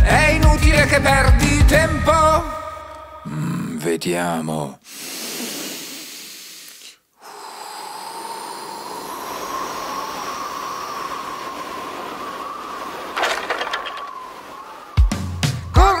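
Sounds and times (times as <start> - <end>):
cartoon breath rush: 4.8 - 15.1
whistling wind gust: 7.6 - 15.7.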